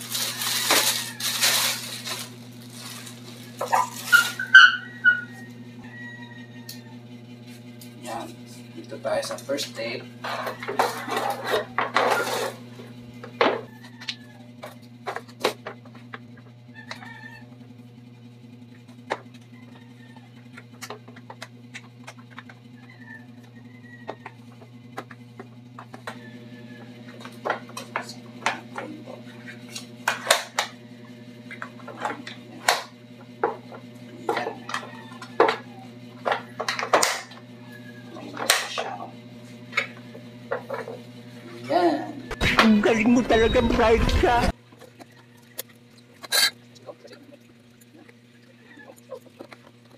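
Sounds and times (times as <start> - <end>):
rustling: 0.0 - 4.4.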